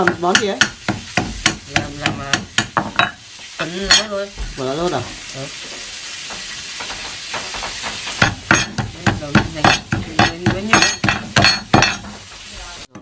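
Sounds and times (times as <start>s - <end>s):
hammer pounding meat on wood: 0.0s - 3.0s, 6.8s - 12.0s
steady hiss: 0.2s - 12.9s.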